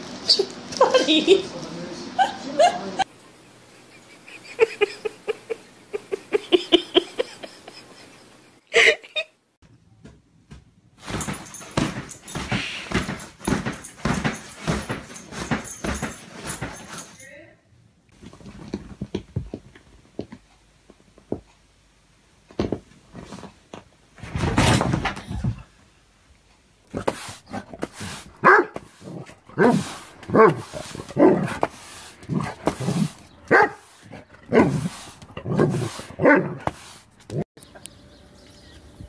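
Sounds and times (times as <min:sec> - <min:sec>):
loud rustling rush: 0:27.0 - 0:37.2
push broom sweeping concrete: 0:27.0 - 0:37.5
dog barking: 0:28.4 - 0:28.8, 0:29.6 - 0:31.6, 0:33.5 - 0:33.8, 0:35.4 - 0:36.6.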